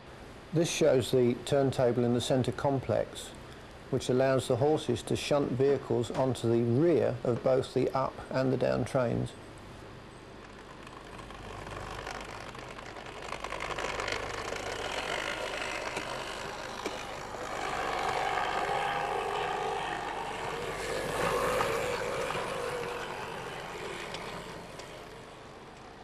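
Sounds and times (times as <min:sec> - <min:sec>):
model train motor whirring: 0:10.4 - 0:26.0.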